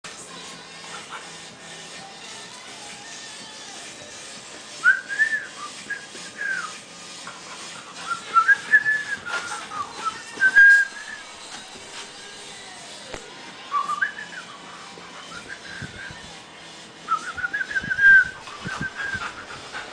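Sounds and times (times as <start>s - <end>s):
person whistling: 4.8s - 6.8s, 8.0s - 11.2s, 17.1s - 19.2s.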